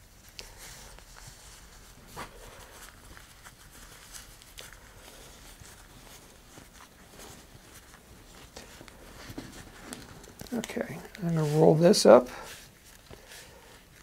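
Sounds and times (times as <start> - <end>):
fabric rustling: 0.0 - 14.0
light handling ticks: 2.8 - 14.0.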